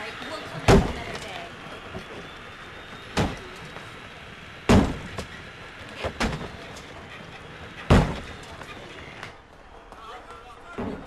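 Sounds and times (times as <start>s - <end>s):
heavy thuds: 4.6s - 5.4s, 7.8s - 8.7s.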